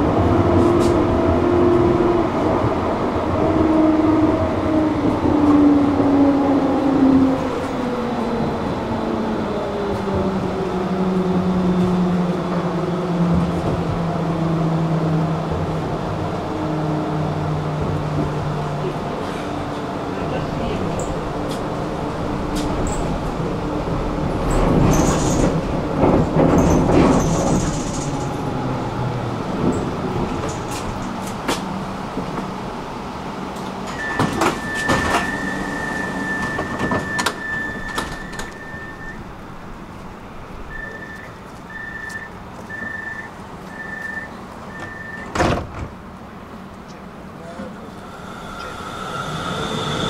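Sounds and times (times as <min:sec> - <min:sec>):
tram rumbling: 0:00.0 - 0:50.0
short beeps: 0:33.9 - 0:39.2, 0:40.7 - 0:45.3
steady high door tone: 0:47.6 - 0:50.0.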